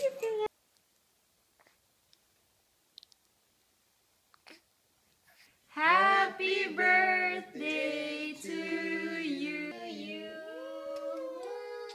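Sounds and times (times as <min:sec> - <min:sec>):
people singing together: 0:05.8 - 0:11.6.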